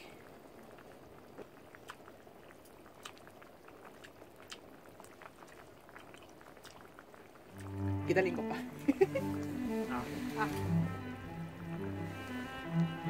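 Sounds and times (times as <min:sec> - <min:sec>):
broth simmering with bubbling pops: 0:00.0 - 0:13.0.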